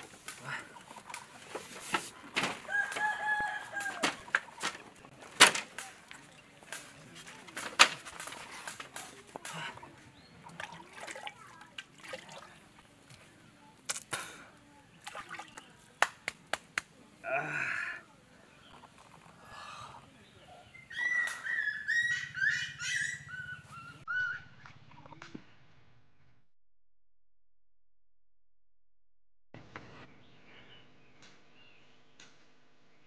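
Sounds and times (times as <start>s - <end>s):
rooster crowing: 2.6s - 4.2s.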